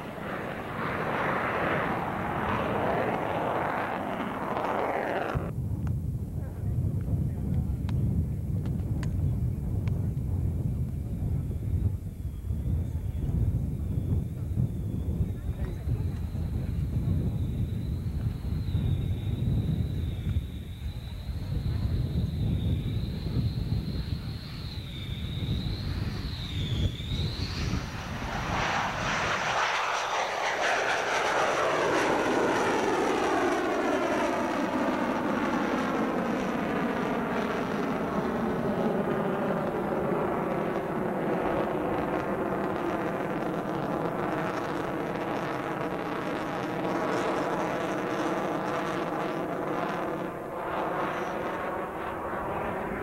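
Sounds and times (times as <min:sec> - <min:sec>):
jet whoosh: 0:00.0 - 0:05.5, 0:25.9 - 0:32.9
jet engines roaring: 0:00.0 - 0:05.6, 0:15.3 - 0:53.0.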